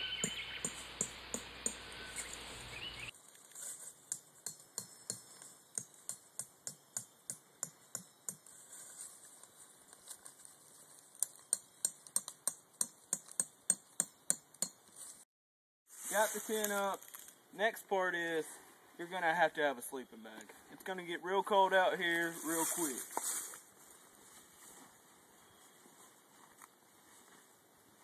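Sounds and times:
hammer tapping tent stakes: 0.2s - 1.8s, 4.1s - 8.5s, 11.2s - 14.8s.

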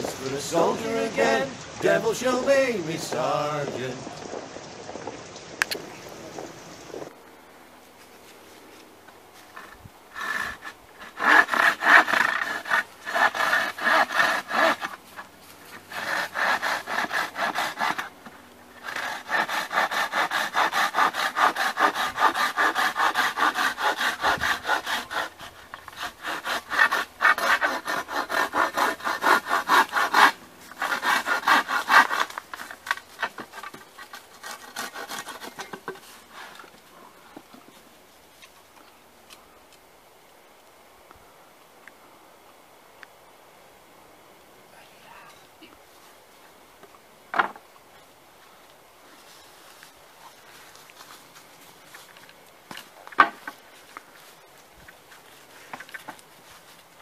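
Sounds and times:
hand saw cutting wood: 9.5s - 36.7s.

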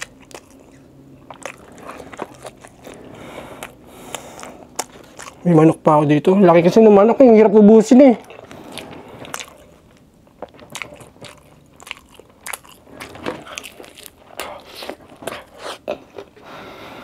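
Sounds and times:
crunchy chewing of fried chicken: 0.0s - 6.0s, 8.2s - 16.8s.

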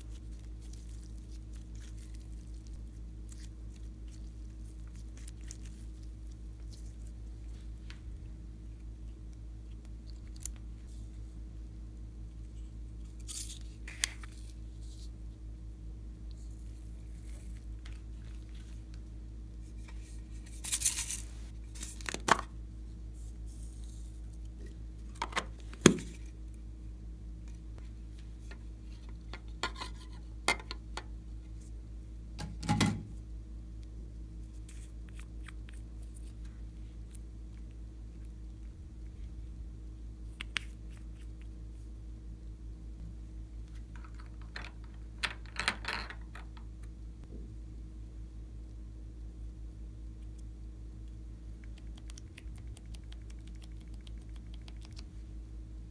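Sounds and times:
slime squishing: 0.0s - 11.0s
low hum: 0.0s - 55.9s.

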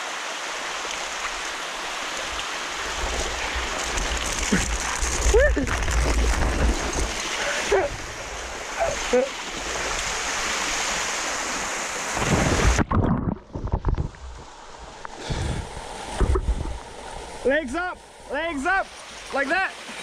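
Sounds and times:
rushing water hiss: 0.0s - 12.8s, 14.0s - 20.0s
low thumps: 16.1s - 16.9s.

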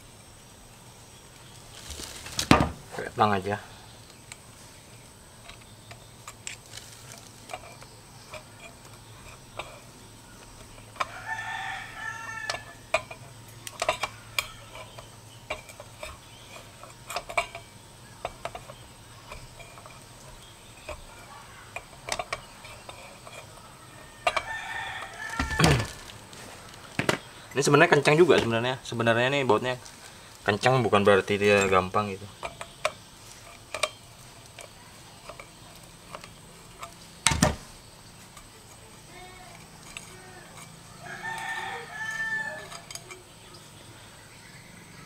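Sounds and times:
rooster crowing: 11.0s - 13.2s, 23.0s - 26.2s, 39.9s - 43.2s
pliers clicking on metal: 39.4s - 43.3s.

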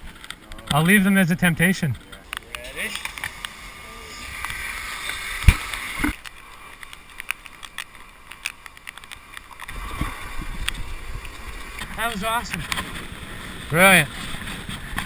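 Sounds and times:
ski hissing on matting: 2.7s - 6.2s
wind rumble on microphone: 9.7s - 15.0s.

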